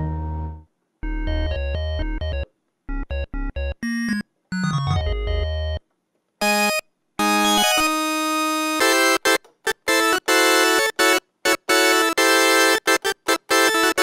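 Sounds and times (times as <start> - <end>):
synthesizer chords: 0.0 - 5.8.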